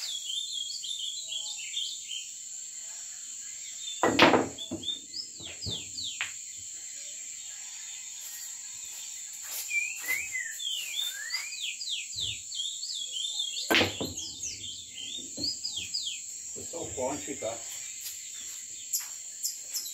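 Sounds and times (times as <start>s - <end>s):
high insect drone: 0.0s - 19.9s
cue striking ball: 4.0s - 4.6s, 13.7s - 14.5s
billiard balls knocking together: 4.0s - 6.3s, 13.7s - 14.6s.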